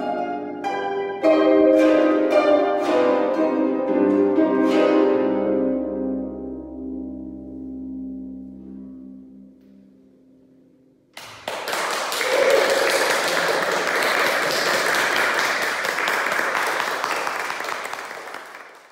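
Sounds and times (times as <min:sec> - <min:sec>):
audience applause: 0:11.2 - 0:18.9.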